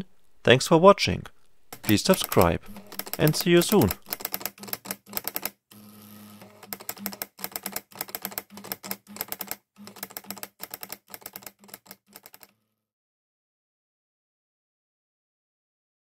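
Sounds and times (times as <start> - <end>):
plotter stepper motors ticking: 1.8 - 12.5.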